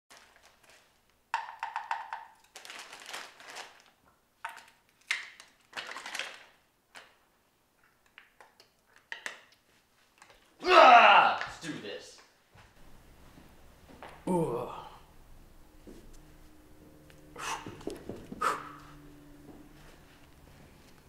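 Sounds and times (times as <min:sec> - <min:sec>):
crinkling and rustling: 0:00.1 - 0:01.2, 0:02.3 - 0:10.6.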